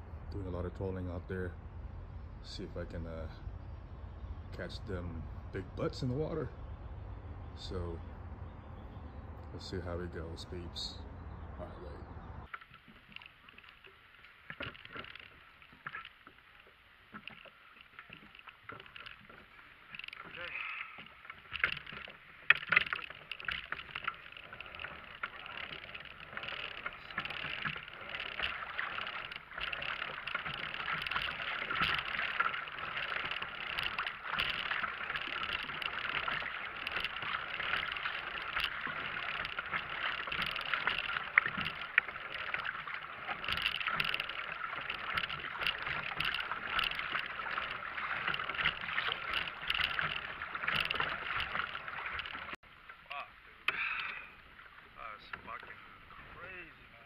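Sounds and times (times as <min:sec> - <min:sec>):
water gurgling along kayak hull: 0:00.0 - 0:57.0
small clicks and knocks: 0:12.4 - 0:53.0.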